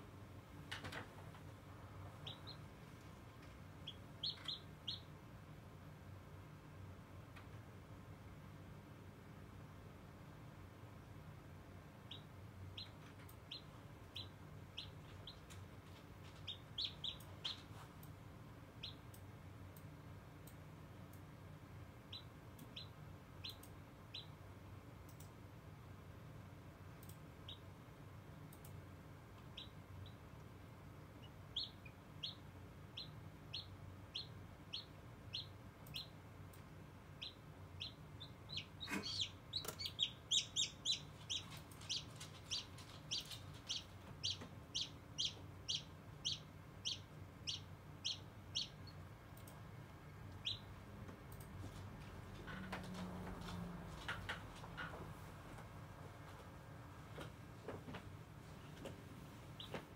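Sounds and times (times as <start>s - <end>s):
steady low hum: 0.0s - 54.1s
chick peeping: 2.0s - 2.8s, 3.8s - 5.2s, 12.0s - 17.9s, 18.8s - 19.2s, 22.0s - 24.4s, 27.4s - 27.7s, 29.4s - 30.4s, 31.1s - 49.6s, 50.3s - 50.8s, 59.6s - 59.9s.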